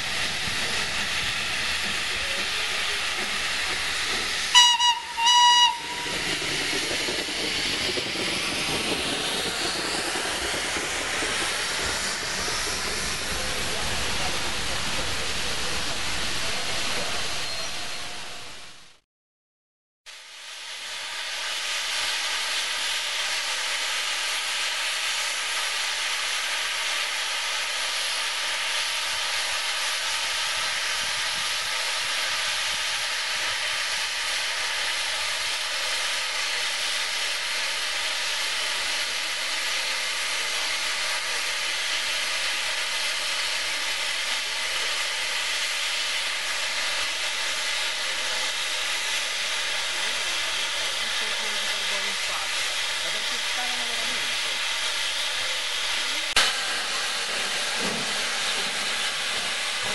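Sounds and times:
steam locomotive hissing: 0.0 - 18.9, 20.2 - 59.9.

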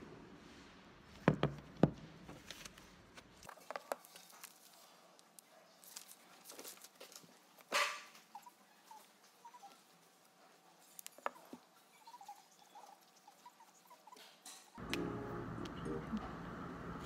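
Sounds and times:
paper rustle: 2.3 - 7.7.

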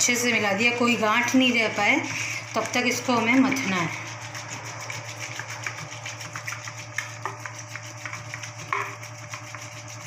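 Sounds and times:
wooden churner knocking steel bowl: 2.5 - 10.0.

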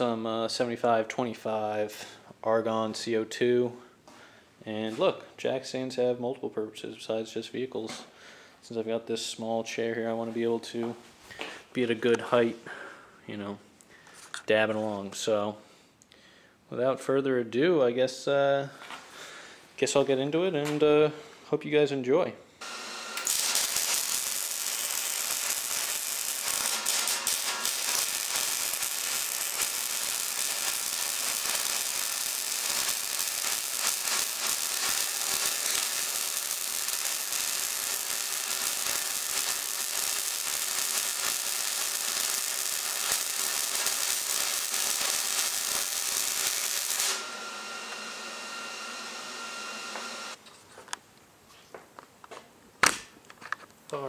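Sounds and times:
welder arc crackling: 22.6 - 48.3.

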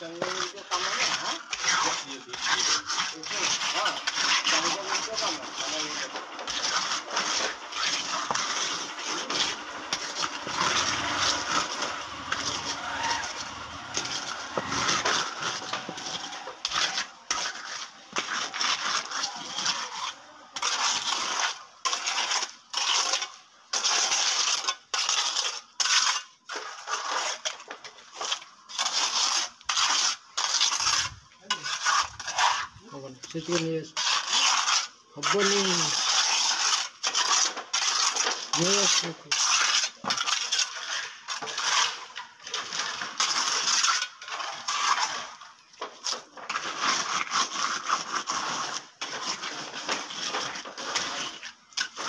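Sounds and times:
wet concrete scraping: 0.0 - 52.0.

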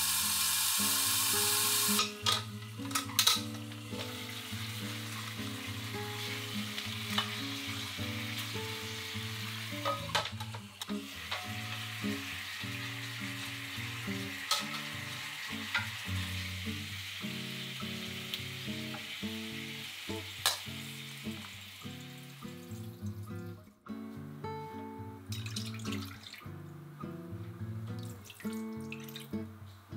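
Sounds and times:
beef sizzling in oil: 0.0 - 23.4.

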